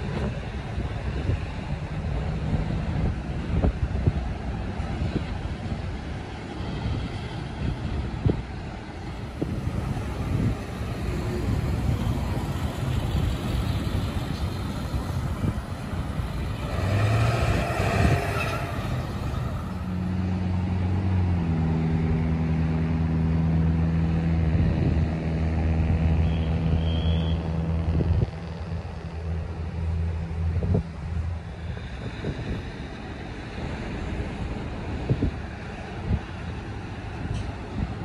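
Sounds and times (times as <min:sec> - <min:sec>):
large vehicle engine hum: 0:00.0 - 0:38.0
road traffic: 0:00.0 - 0:38.0
wind rumble on microphone: 0:00.0 - 0:38.0
vehicle passing: 0:09.1 - 0:36.0.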